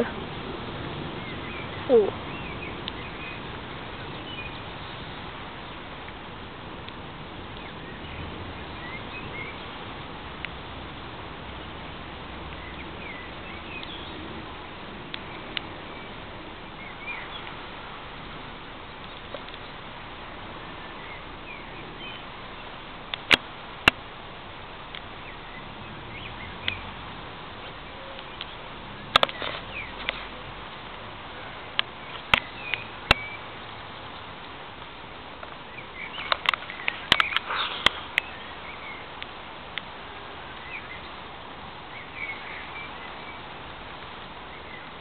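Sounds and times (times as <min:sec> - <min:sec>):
steady hiss: 0:00.0 - 0:45.0
bird chirps: 0:01.2 - 0:05.8, 0:07.6 - 0:09.8, 0:12.6 - 0:14.3, 0:16.8 - 0:17.6, 0:31.9 - 0:34.3, 0:35.6 - 0:39.1, 0:41.9 - 0:43.5.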